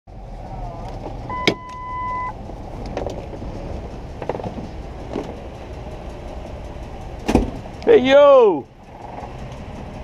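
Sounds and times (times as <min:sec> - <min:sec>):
low rumble: 0:00.1 - 0:10.0
car door opening clatter: 0:00.8 - 0:05.7, 0:07.1 - 0:07.9
electronic beep: 0:01.3 - 0:02.4.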